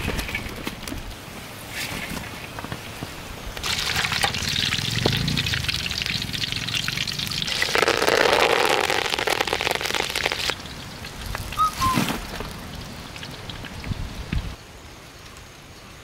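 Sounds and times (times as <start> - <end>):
food deep-frying in hot oil: 3.6 - 16.0
short high chirp: 11.6 - 12.1.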